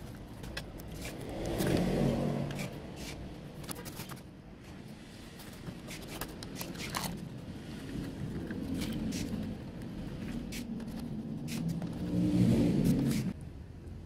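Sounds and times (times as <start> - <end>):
circuit board clicks and scrapes: 0.0 - 4.3.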